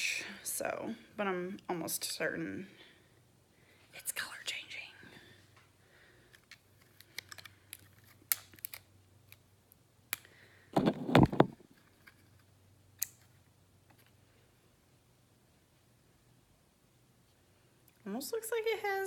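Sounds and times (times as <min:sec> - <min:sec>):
handling noise: 0:10.8 - 0:12.2.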